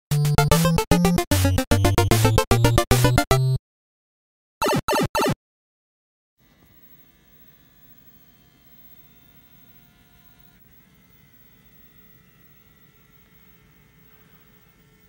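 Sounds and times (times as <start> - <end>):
faint electrical hum: 6.4 - 15.0.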